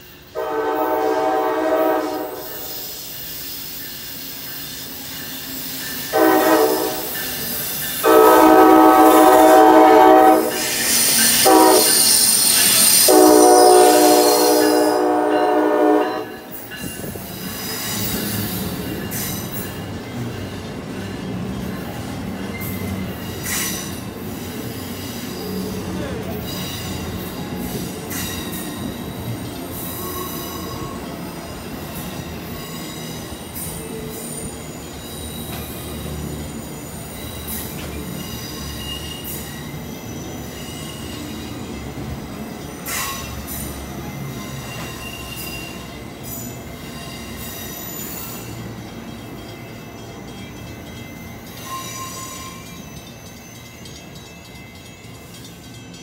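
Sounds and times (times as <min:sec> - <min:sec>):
train wheels rumbling on rails: 0:00.0 - 0:56.0
wheel squeal: 0:32.5 - 0:41.4, 0:51.6 - 0:53.3.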